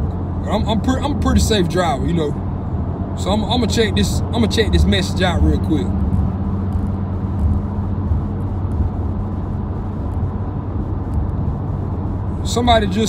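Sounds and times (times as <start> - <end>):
car road and engine noise: 0.0 - 13.0.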